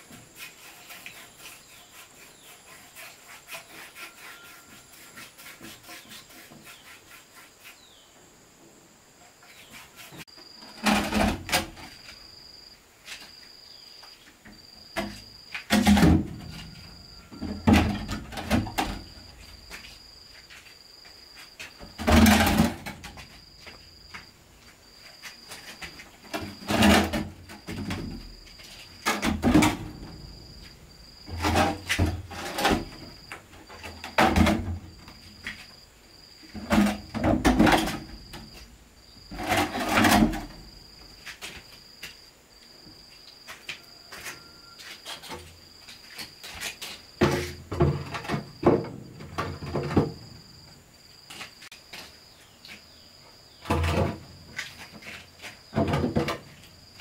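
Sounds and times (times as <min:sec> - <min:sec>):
cricket chirping: 0:00.0 - 0:57.0.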